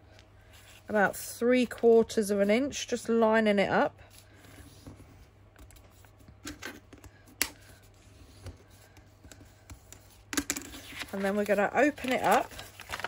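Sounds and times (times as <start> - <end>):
paper rustling: 7.7 - 13.0.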